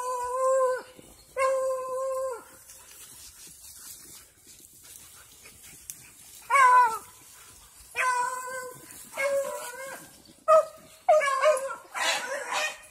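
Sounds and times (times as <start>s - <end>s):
hound baying: 6.4s - 12.9s.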